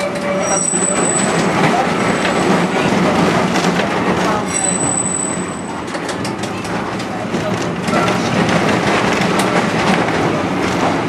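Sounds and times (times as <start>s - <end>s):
tram wheels rumbling on rail: 0.0s - 11.0s
high wheel squeal: 0.3s - 1.6s, 4.5s - 5.8s.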